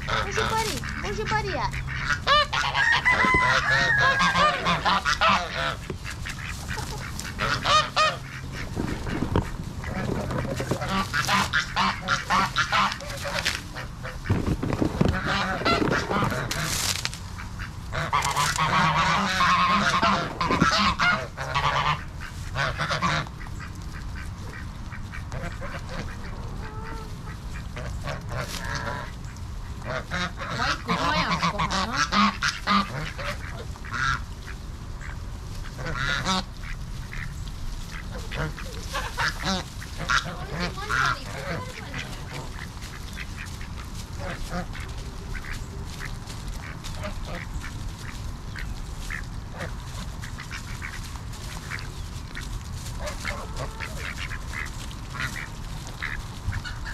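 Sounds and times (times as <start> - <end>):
ducks quacking: 0.0 - 56.9
geese honking: 0.0 - 56.9.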